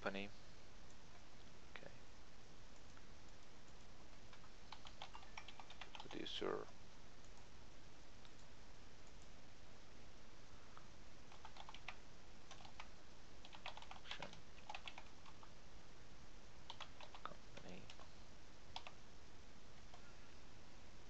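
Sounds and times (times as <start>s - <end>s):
keyboard keys clicking: 2.8s - 6.2s, 11.3s - 15.5s, 16.7s - 18.1s, 18.7s - 19.0s.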